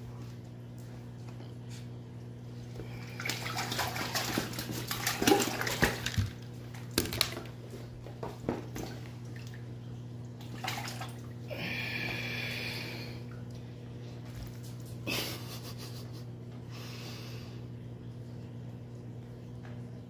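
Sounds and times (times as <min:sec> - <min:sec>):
steady low hum: 0:00.0 - 0:20.0
wet splashing and rustling: 0:02.9 - 0:09.8, 0:10.4 - 0:11.5.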